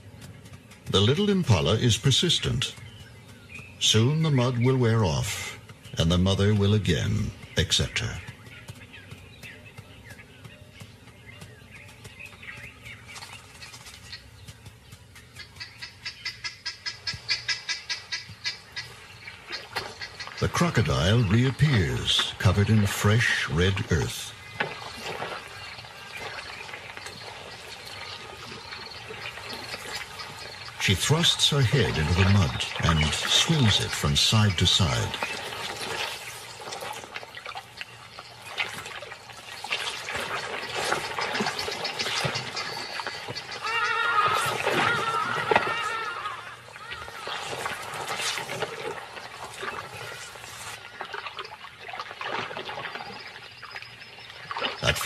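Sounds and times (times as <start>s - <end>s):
mud and water squelching: 0.0s - 55.0s
small wet slaps: 34.9s - 43.4s.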